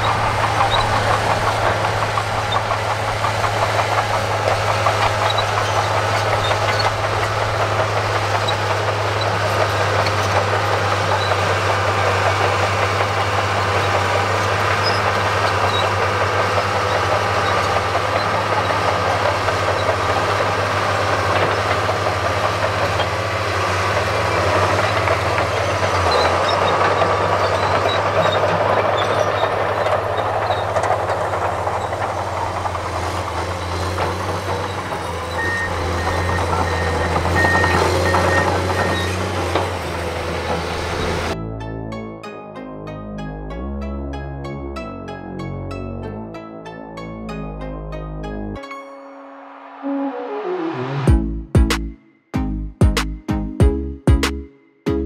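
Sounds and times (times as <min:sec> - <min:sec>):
bulldozer diesel engine under load: 0:00.0 - 0:41.5
backup alarm beeping: 0:35.2 - 0:39.1.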